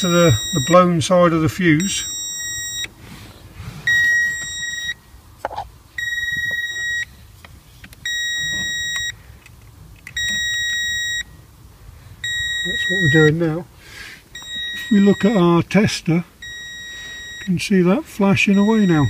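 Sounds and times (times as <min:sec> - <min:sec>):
circuit tester beeping: 0:00.0 - 0:03.0, 0:03.9 - 0:05.0, 0:06.0 - 0:07.1, 0:08.0 - 0:09.2, 0:10.1 - 0:11.3, 0:12.2 - 0:13.4, 0:14.4 - 0:15.5, 0:16.4 - 0:17.5, 0:18.5 - 0:19.0.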